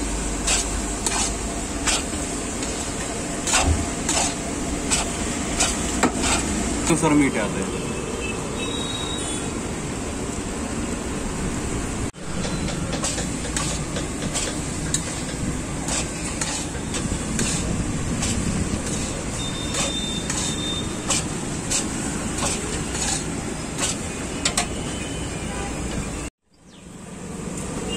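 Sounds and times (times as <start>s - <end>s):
gas burner rushing: 0.0s - 7.0s, 11.4s - 25.0s
metal spatula scraping a pan: 0.4s - 2.8s, 3.4s - 6.6s, 12.3s - 25.2s.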